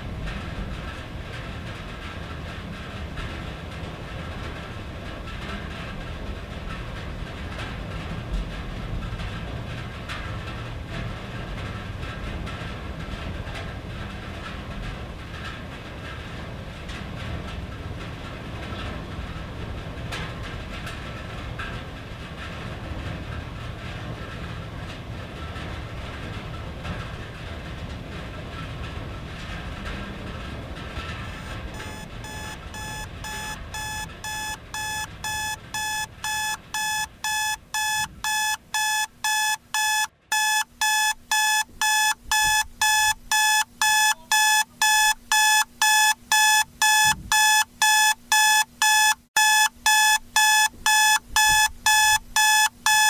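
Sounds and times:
rain on a tin roof: 0.0s - 35.2s
alarm clock beeping: 31.3s - 53.0s.

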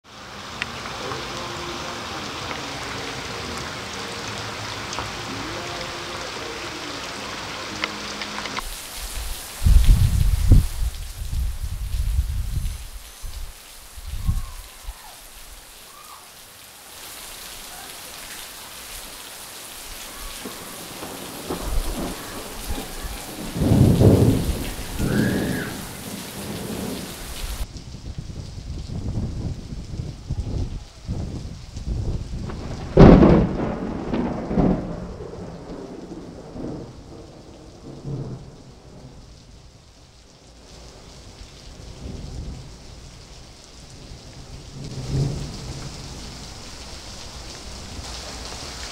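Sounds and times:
heavy rain on water: 0.0s - 48.9s
thunder rumble: 8.6s - 15.1s, 19.9s - 39.3s.

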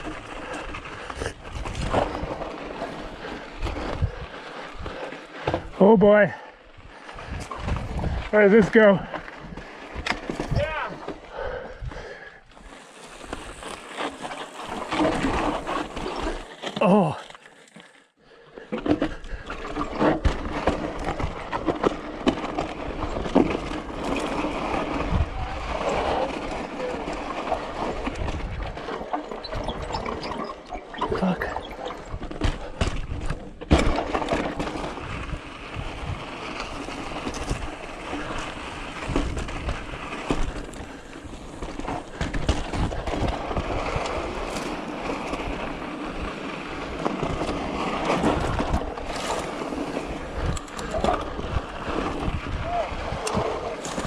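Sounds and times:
tyres rolling over rock: 0.0s - 18.0s, 18.7s - 54.0s
wind on microphone: 6.8s - 8.4s, 24.9s - 26.6s, 50.0s - 54.0s
bike knocks and rattles: 12.6s - 16.7s, 18.7s - 54.0s.

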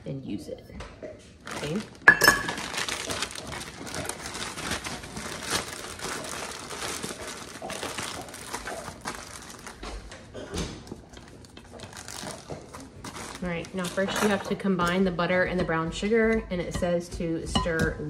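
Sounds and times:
plastic bag crinkling: 1.4s - 14.6s.

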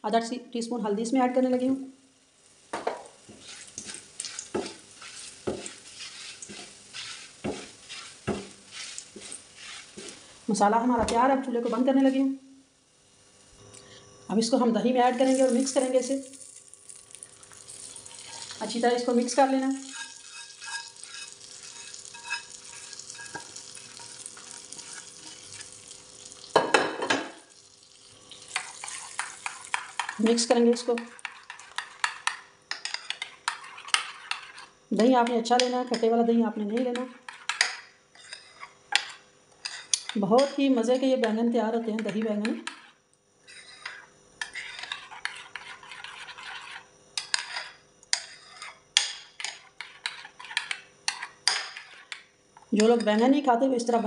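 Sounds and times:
hot oil crackling and sizzling: 2.2s - 10.6s, 15.1s - 32.4s
spatula scraping pan: 3.2s - 10.4s, 18.0s - 25.8s, 28.6s - 34.8s, 36.7s - 40.6s, 42.0s - 52.2s
spoon clinking against bowl: 19.8s - 24.2s.

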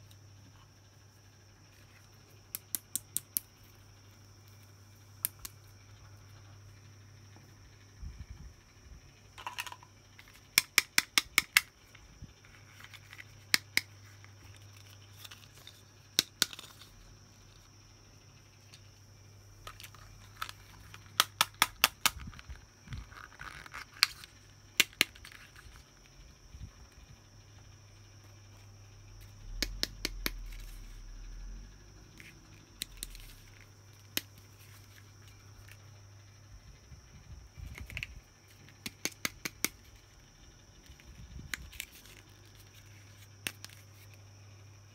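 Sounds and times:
faint steady hum: 0.0s - 44.9s
plastic toy pieces clicking: 9.4s - 11.7s.

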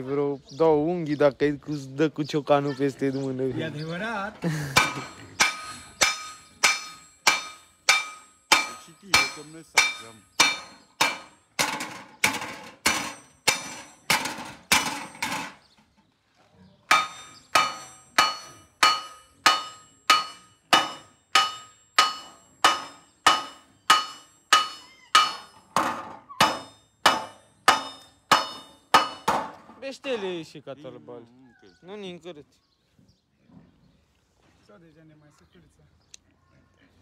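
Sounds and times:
hammer striking copper sheet: 4.8s - 15.6s, 16.9s - 29.8s.

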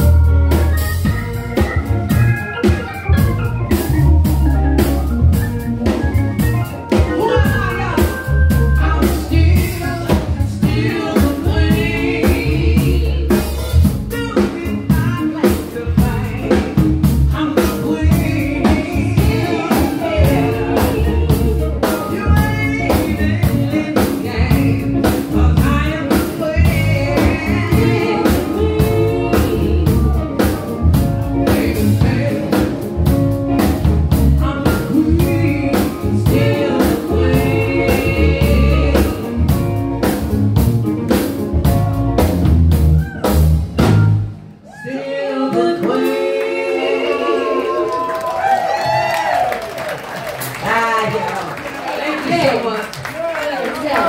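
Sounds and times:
electronic keyboard playing: 0.0s - 14.1s
drum kit: 0.0s - 44.6s, 45.4s - 46.9s
woman singing: 6.9s - 32.9s, 33.6s - 39.6s, 44.8s - 48.2s.

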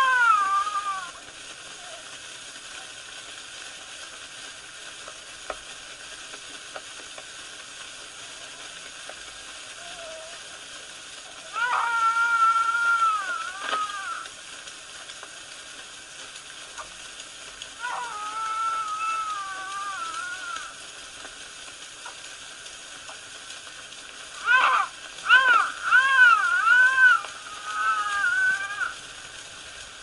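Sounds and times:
baby crying: 0.0s - 1.2s, 11.5s - 14.3s, 17.8s - 20.7s, 24.4s - 29.0s
faint clicks: 0.0s - 30.0s.

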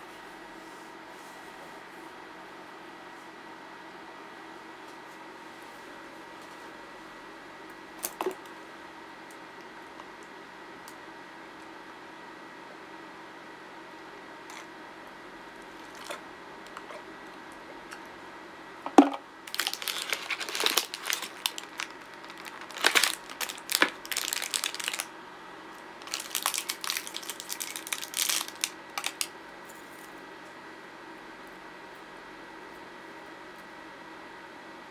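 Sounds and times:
packaging crinkling: 15.7s - 17.0s, 18.9s - 25.1s, 26.0s - 29.3s.

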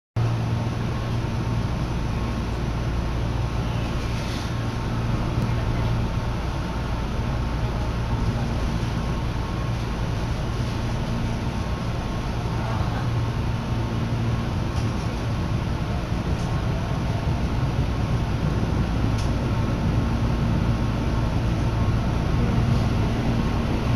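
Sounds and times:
even rush of background noise: 0.2s - 23.9s
steady low hum: 0.2s - 23.9s.

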